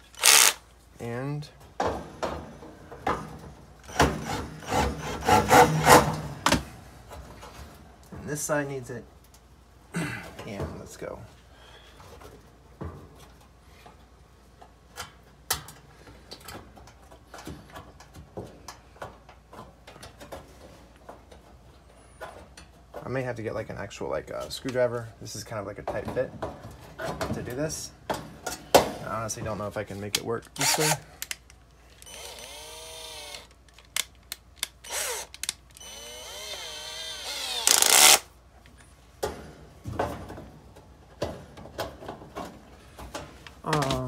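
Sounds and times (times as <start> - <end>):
drill chuck clicks and rattle: 0.0 - 0.6, 30.6 - 38.2
drill motor whirring: 0.0 - 0.6, 30.6 - 31.0, 32.0 - 33.6, 34.8 - 38.2.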